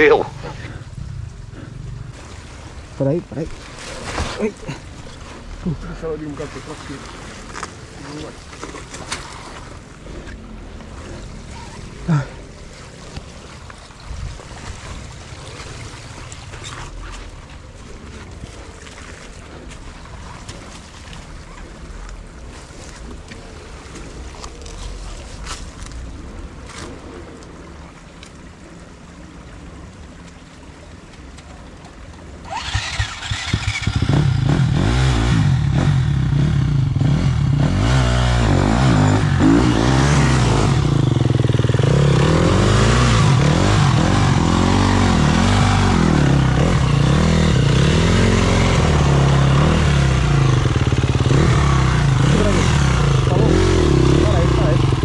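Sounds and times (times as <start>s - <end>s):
dirt bike engine revving: 32.5s - 55.0s.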